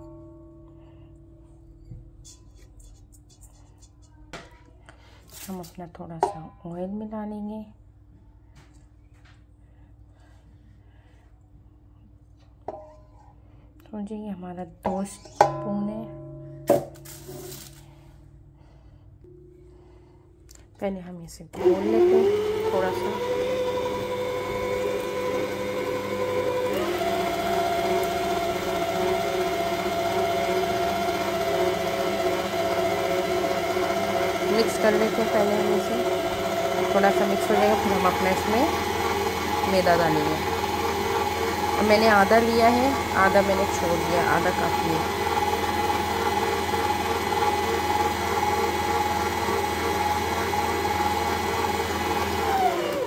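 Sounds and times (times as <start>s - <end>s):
stand mixer motor whining: 21.6s - 53.0s.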